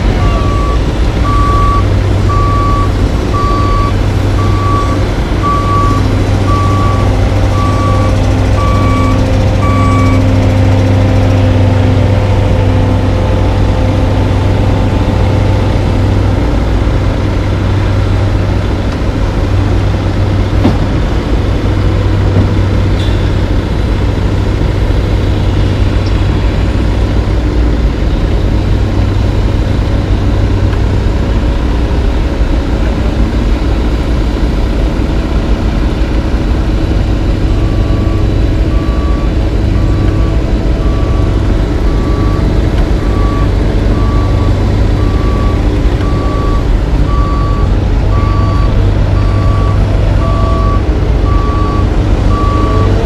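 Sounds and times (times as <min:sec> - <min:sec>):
heavy machinery low rumble: 0:00.0 - 0:53.0
backup alarm beeping: 0:00.2 - 0:10.4, 0:37.6 - 0:53.0.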